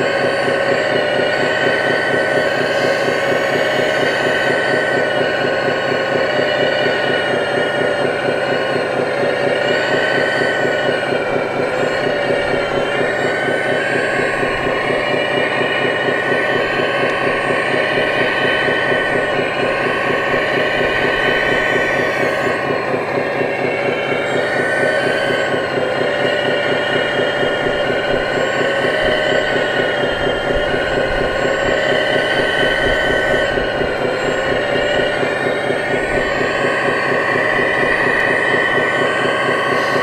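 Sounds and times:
hydraulic pump whining: 0.0s - 40.0s.

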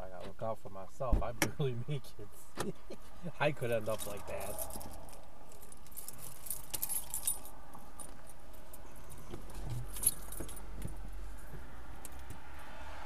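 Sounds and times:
clicking and jingling in car: 3.7s - 12.4s.

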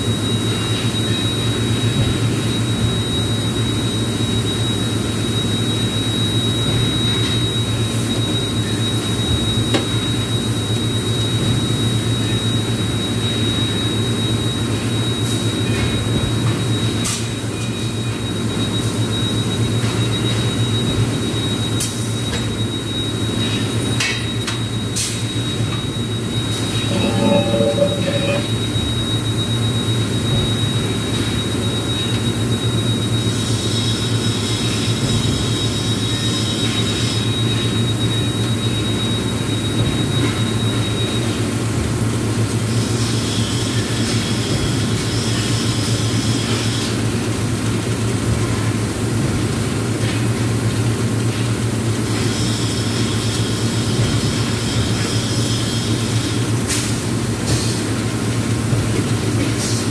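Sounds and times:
industrial machine drone: 0.0s - 59.9s
thin high whine: 25.5s - 29.4s.

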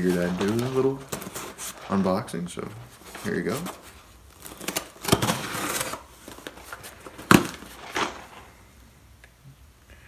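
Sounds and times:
cardboard rustling: 0.0s - 8.6s
knife slitting packing tape: 4.4s - 6.5s.

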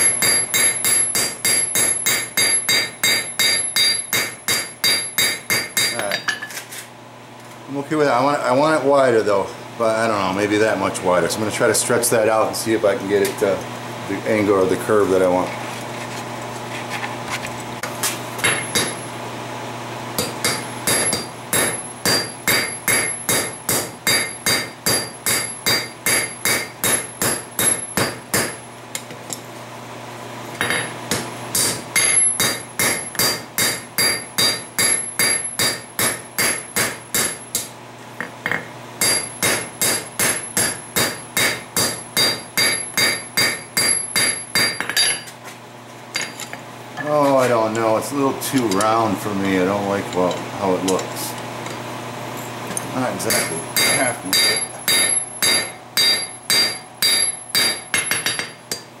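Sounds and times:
hammer striking steel on anvil: 0.0s - 6.5s, 18.4s - 19.1s, 20.2s - 28.6s, 30.6s - 37.7s, 38.4s - 45.3s, 53.2s - 58.9s
steady low hum: 0.0s - 59.0s.

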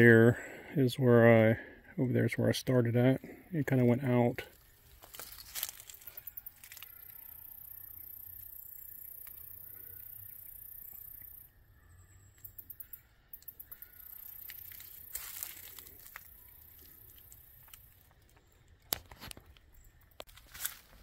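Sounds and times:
footsteps crunching on leaves: 4.5s - 7.0s, 14.2s - 17.9s, 20.3s - 21.0s.

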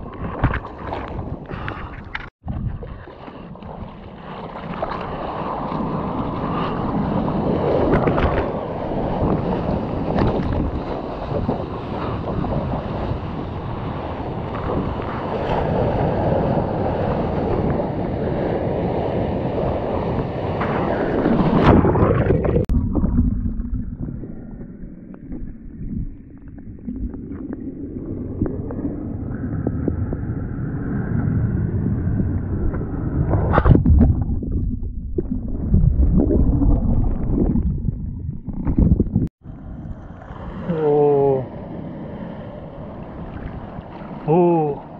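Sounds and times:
seawater rushing and splashing: 0.0s - 23.8s, 32.0s - 44.9s
wind buffeting microphone: 4.8s - 22.7s.

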